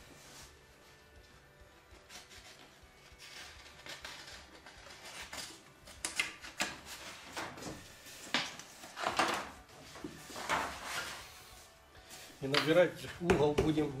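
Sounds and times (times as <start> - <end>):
paper rustling and scraping: 2.0 - 5.6, 6.5 - 12.8.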